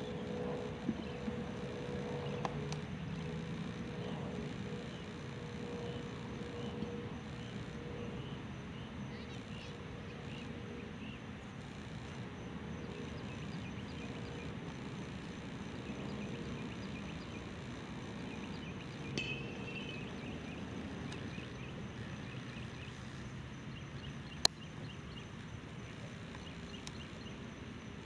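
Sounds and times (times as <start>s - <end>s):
distant jet engines rumbling: 0.0s - 27.9s
bird chirps: 18.3s - 23.0s.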